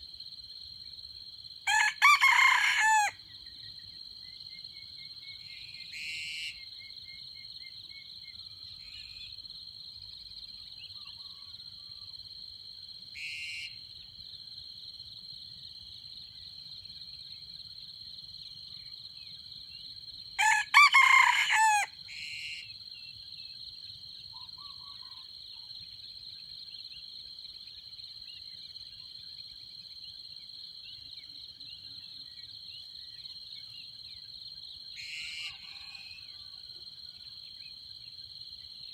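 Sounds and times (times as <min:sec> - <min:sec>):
rooster crowing: 0:01.7 - 0:03.2, 0:20.4 - 0:21.9, 0:35.0 - 0:36.7.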